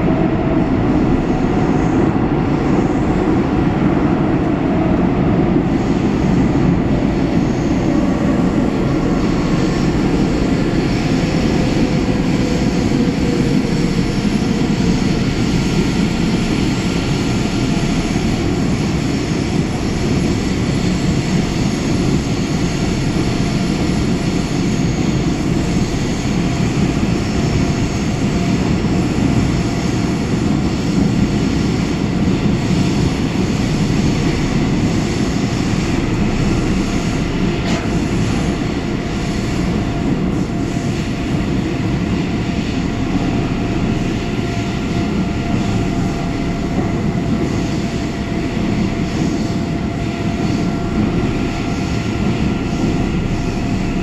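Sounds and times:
train wheels rumbling on rail: 0.0 - 54.0.

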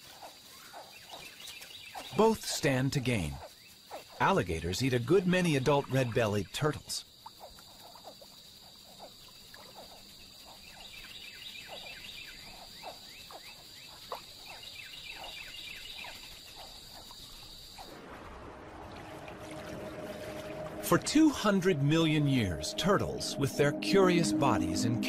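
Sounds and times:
high insect buzz: 6.8 - 18.0.

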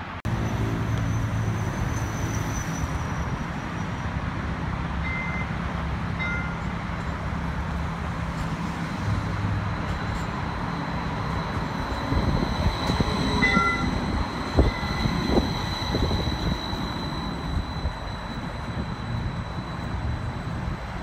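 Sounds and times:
street traffic rumbling: 0.0 - 21.0
streetcar engine hum: 0.0 - 21.0.

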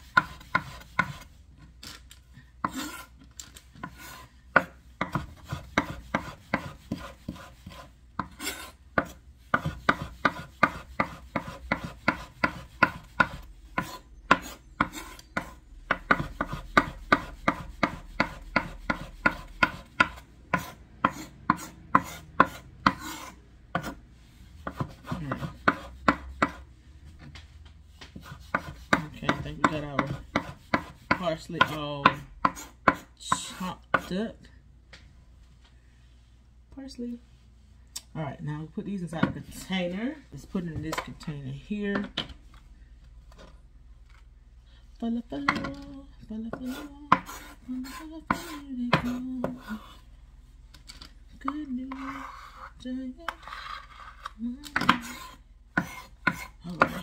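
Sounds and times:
knife chopping herbs: 0.0 - 1.4, 3.8 - 26.7, 27.9 - 34.2, 46.5 - 50.0, 51.4 - 57.0.

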